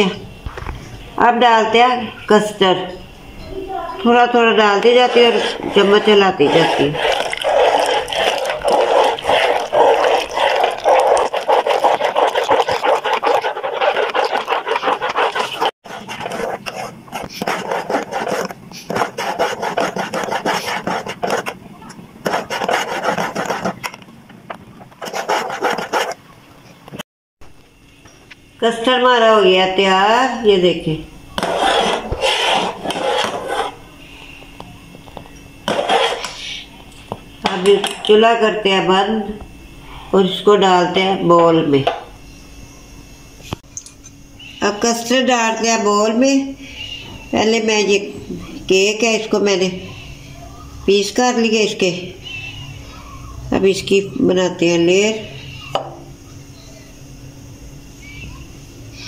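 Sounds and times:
metal spoon scraping pot: 4.6 - 21.5.

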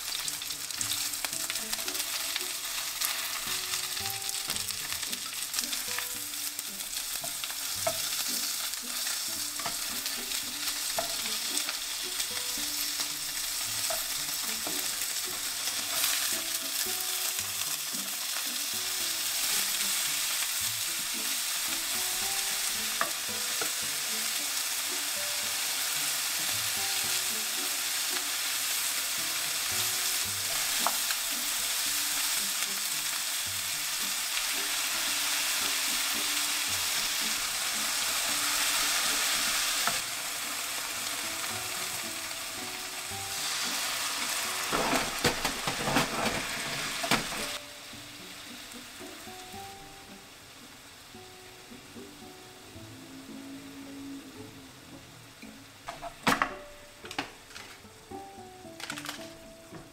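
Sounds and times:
food sizzling in a frying pan: 0.0 - 59.9.

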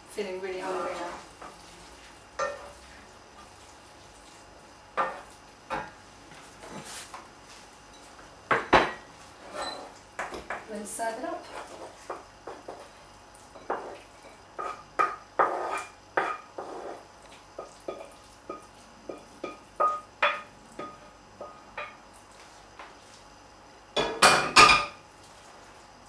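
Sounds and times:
spoon scraping a frying pan: 0.6 - 1.7, 2.4 - 3.5, 5.0 - 5.8, 9.0 - 10.3, 11.4 - 12.9, 13.5 - 22.0.

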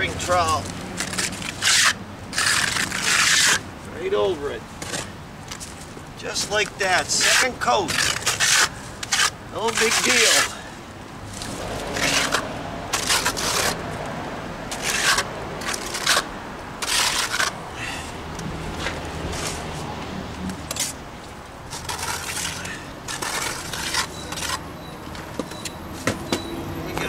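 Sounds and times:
trowel scraping wet plaster: 0.1 - 3.6, 6.4 - 10.6, 11.3 - 13.8, 14.7 - 17.6, 21.7 - 24.6.

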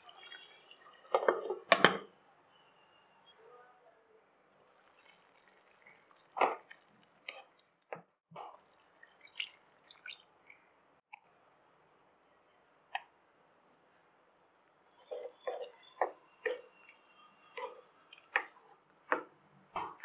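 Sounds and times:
liquid pouring and dripping: 0.0 - 1.6, 4.6 - 10.8
pan simmering: 4.7 - 10.5.

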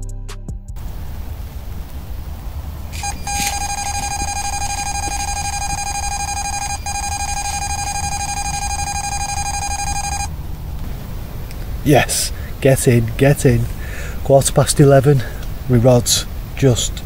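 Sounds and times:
bite alarm high beep: 2.9 - 10.3.

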